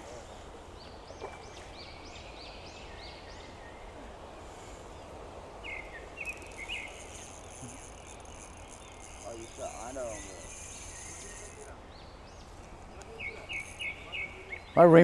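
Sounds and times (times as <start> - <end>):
songbirds whistling: 0.0 - 14.8
low outdoor background noise: 0.0 - 15.0
bird chirps: 5.6 - 14.9.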